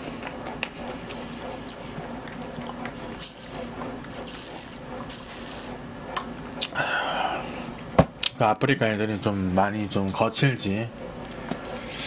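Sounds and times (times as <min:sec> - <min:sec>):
chewing with wet mouth clicks: 0:01.3 - 0:03.2.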